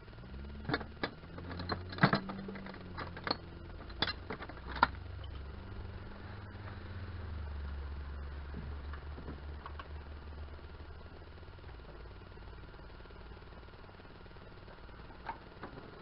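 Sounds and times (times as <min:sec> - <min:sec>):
low steady hum: 0:00.0 - 0:16.0
metal tools clinking in toolbox: 0:00.7 - 0:05.4.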